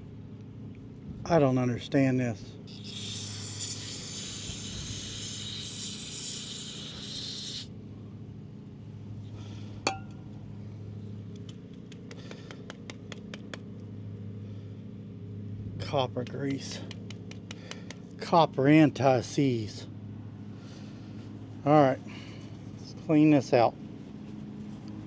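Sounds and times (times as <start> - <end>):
aerosol spray can hissing: 2.7 - 7.7
sharp ringing metal clink: 9.9 - 10.2.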